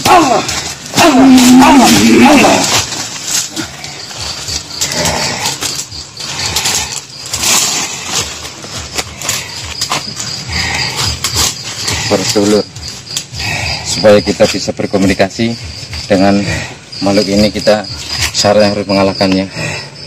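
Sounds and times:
man's animal-like cry: 0:00.0 - 0:02.8
rustling in dry undergrowth: 0:00.2 - 0:13.4.

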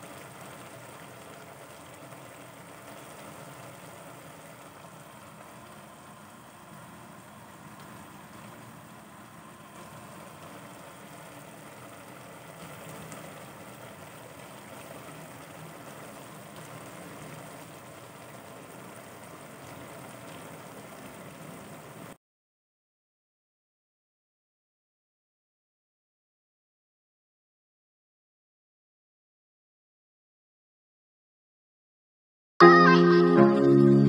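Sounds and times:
pot bubbling: 0:00.0 - 0:22.2.

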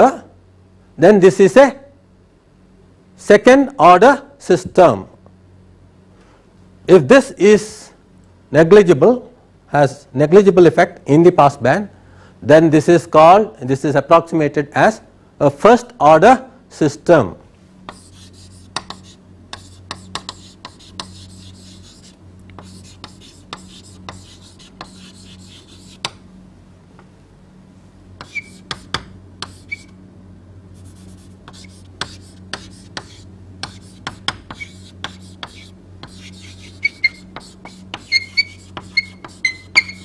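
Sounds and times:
low electrical hum: 0:00.0 - 0:40.0
pen or chalk tapping and scratching: 0:17.9 - 0:26.2, 0:28.2 - 0:29.9, 0:30.8 - 0:40.0
short squeaks of writing: 0:28.2 - 0:30.0, 0:31.5 - 0:40.0.

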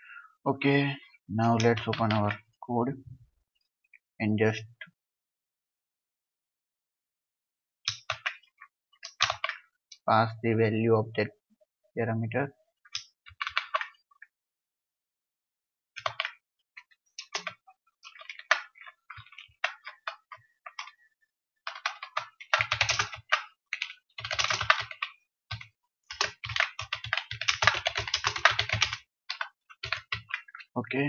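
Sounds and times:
typing on computer keyboard: 0:01.6 - 0:02.3, 0:07.9 - 0:09.6, 0:13.0 - 0:14.0, 0:16.0 - 0:16.4, 0:17.2 - 0:20.9, 0:21.7 - 0:30.7.

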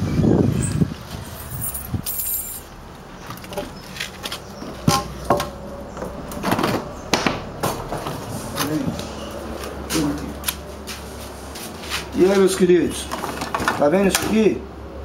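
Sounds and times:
keys jangling: 0:01.3 - 0:02.7.

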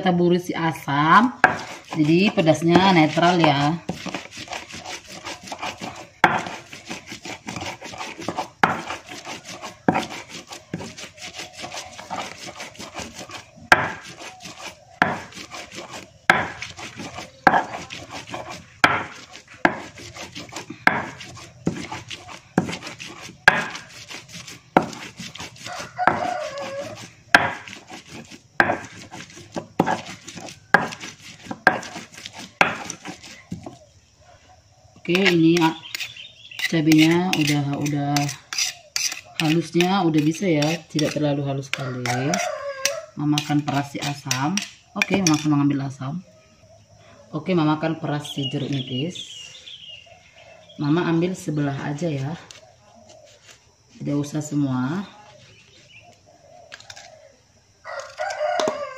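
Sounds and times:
grinding scrapes: 0:00.8 - 0:33.8, 0:35.1 - 0:45.6
stone pestle knocking in mortar: 0:01.4 - 0:33.8.

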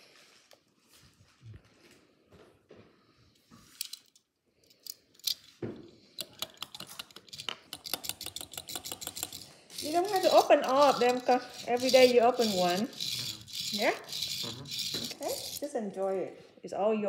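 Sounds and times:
toy car clicking on countertop: 0:06.2 - 0:15.6.

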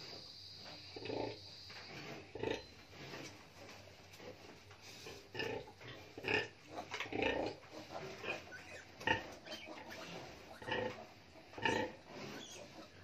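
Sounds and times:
piglets squealing: 0:08.3 - 0:10.9, 0:11.6 - 0:13.0.

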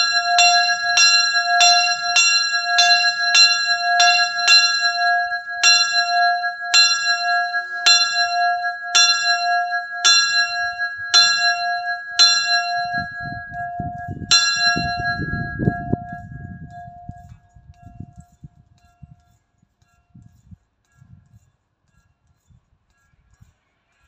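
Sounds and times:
church bell ringing: 0:00.0 - 0:17.2
low rumble: 0:12.7 - 0:17.2.

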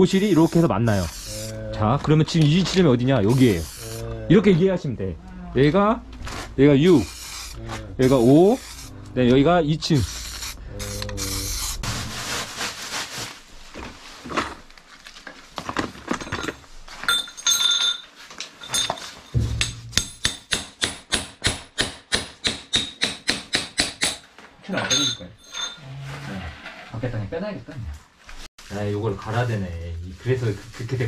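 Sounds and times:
spray-paint can hissing: 0:00.1 - 0:01.6, 0:03.2 - 0:04.0, 0:07.0 - 0:08.9, 0:09.9 - 0:11.9.

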